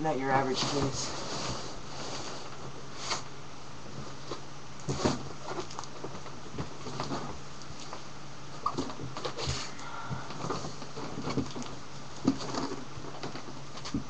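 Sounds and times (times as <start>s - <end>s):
steady low hum: 0.0s - 14.0s
cardboard packaging scrapes and rustles: 0.3s - 8.0s, 10.4s - 14.0s.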